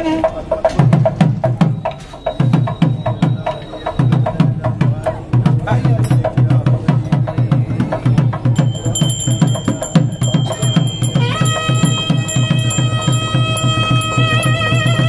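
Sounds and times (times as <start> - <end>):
drum beaten in fast rhythm: 0.0 - 15.0
high ringing tone: 8.6 - 15.0.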